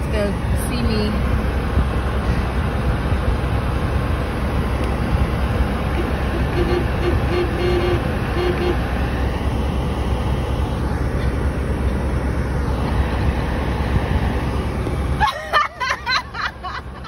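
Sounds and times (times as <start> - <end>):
car engine idling: 0.0 - 17.0.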